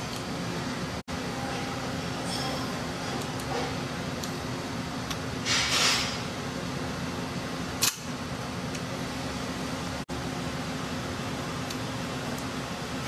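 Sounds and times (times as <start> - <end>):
sharp click: 7.8 - 8.1.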